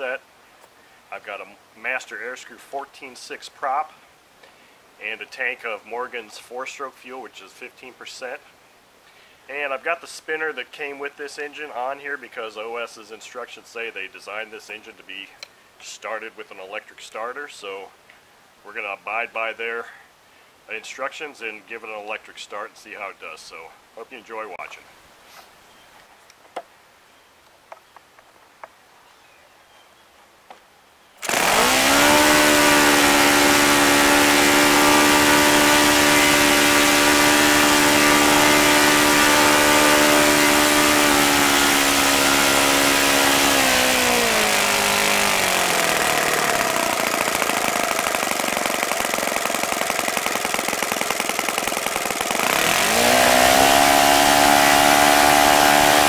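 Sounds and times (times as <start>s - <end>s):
model aircraft engine running: 31.2s - 56.0s.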